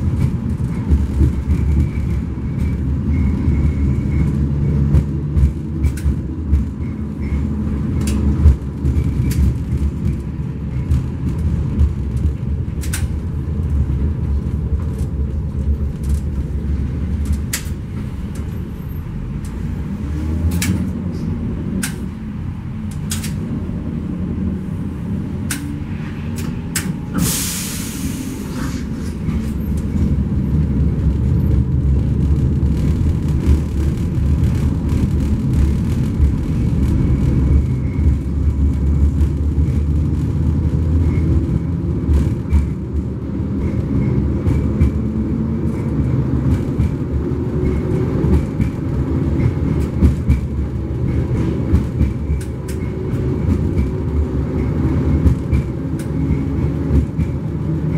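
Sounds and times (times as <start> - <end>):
tram wheels rumbling: 0.0 - 57.9
scattered clicks: 12.1 - 13.2
short hiss: 27.2 - 29.2.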